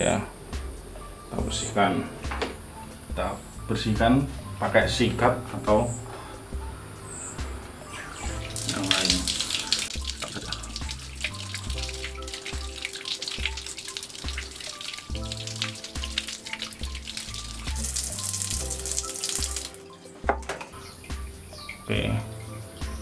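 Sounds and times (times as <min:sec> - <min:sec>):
background music with bass line: 0:00.0 - 0:23.0
tap water running: 0:08.2 - 0:20.5.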